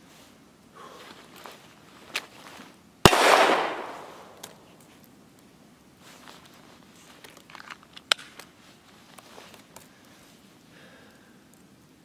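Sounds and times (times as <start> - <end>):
jacket fabric rustling: 0.9 - 2.8
small handling clicks: 7.1 - 8.5.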